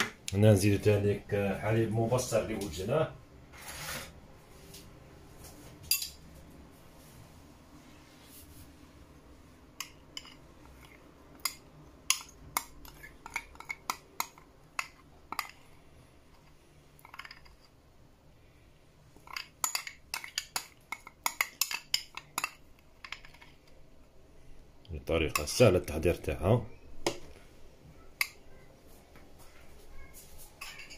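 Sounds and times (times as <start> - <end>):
kitchenware clinking: 5.8 - 6.3, 9.8 - 15.7, 17.0 - 17.8, 19.2 - 23.7, 30.6 - 30.9.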